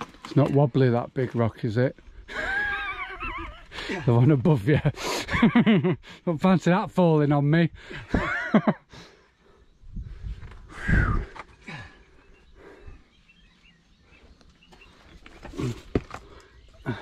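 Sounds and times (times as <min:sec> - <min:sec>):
faint bird chirps: 0:09.1 - 0:17.0
scuffs and knocks on rock: 0:14.7 - 0:16.4.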